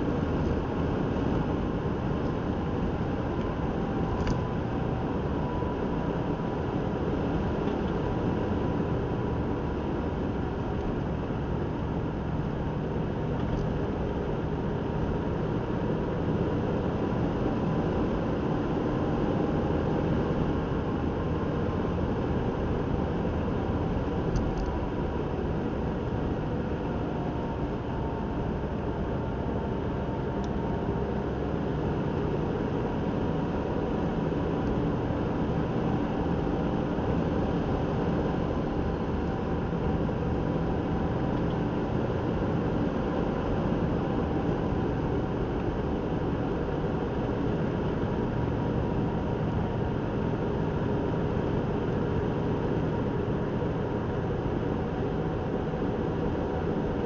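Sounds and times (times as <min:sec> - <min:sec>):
car road and engine noise: 0:00.0 - 0:57.0.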